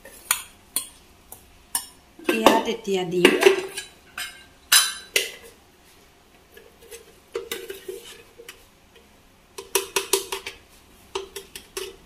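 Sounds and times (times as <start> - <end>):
kitchenware clicks and taps: 9.6 - 12.0.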